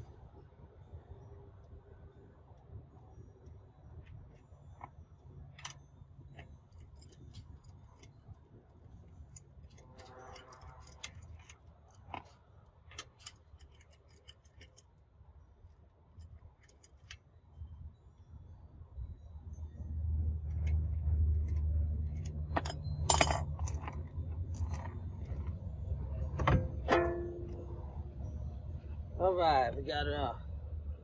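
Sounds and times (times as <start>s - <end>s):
low steady rumble: 0.0s - 31.0s
metallic clicks of lug bolts: 4.0s - 8.4s, 9.1s - 15.0s, 15.6s - 17.3s, 20.4s - 25.6s, 26.2s - 27.8s.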